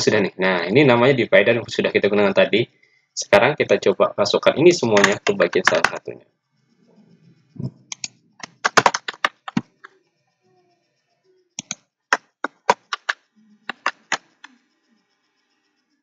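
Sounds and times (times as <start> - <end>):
computer keyboard clicking: 4.9 - 6.0, 7.9 - 9.9, 11.6 - 14.6.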